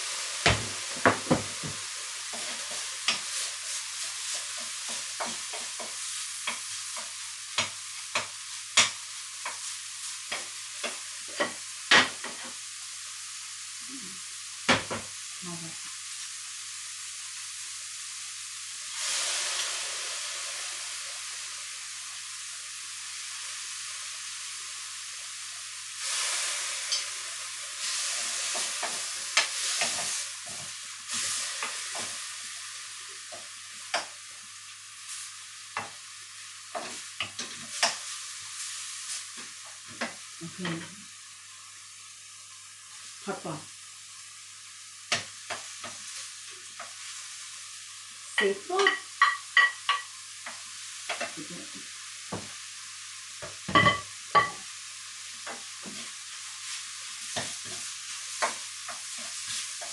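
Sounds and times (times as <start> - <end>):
food sizzling in a wok: 0.0 - 59.9
wooden spatula scraping a pan: 1.6 - 8.9.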